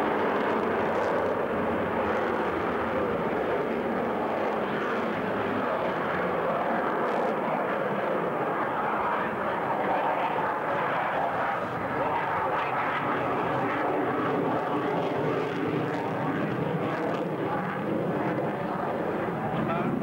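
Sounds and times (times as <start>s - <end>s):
fighter jet engine roar: 0.0s - 20.0s.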